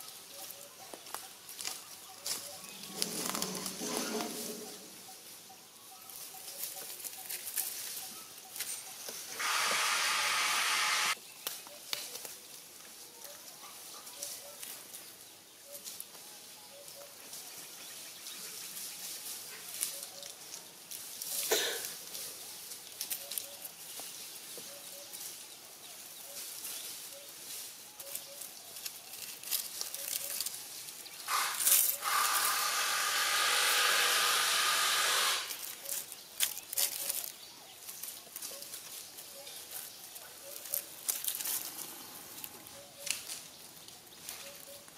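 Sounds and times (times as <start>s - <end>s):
rustling in dry leaves: 0.0s - 44.9s
loud steady hiss: 9.3s - 11.2s, 31.2s - 35.6s.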